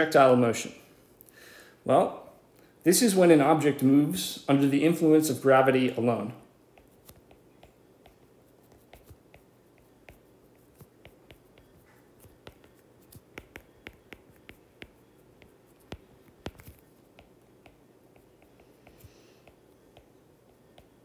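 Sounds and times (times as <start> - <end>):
stylus tapping on glass screen: 10.8 - 20.1.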